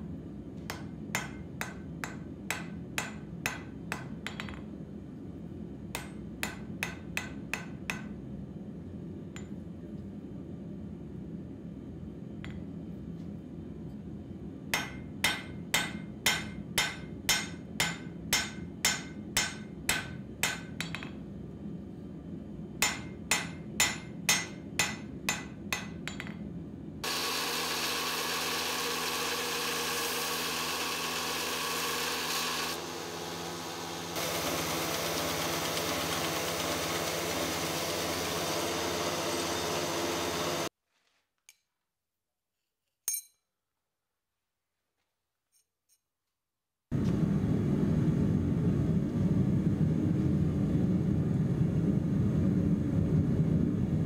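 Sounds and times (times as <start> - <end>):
steady low hum: 0.0 - 27.1, 46.9 - 54.0
hammer striking metal on anvil: 0.7 - 4.6, 5.9 - 8.2, 14.7 - 21.2, 22.8 - 26.4
belt grinder running: 27.0 - 40.7.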